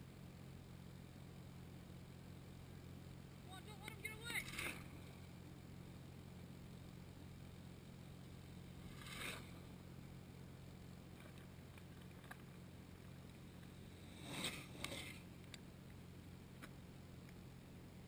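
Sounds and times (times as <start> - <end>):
faint low hum: 0.0 - 18.0
bike tyres whooshing on gravel: 8.7 - 9.7.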